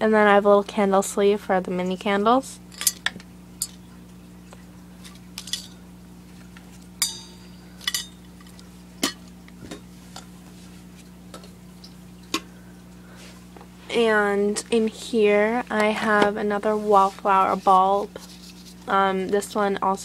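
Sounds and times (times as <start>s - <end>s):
low steady hum: 0.0s - 20.0s
metal and glass clinking: 5.4s - 5.8s, 7.0s - 9.2s.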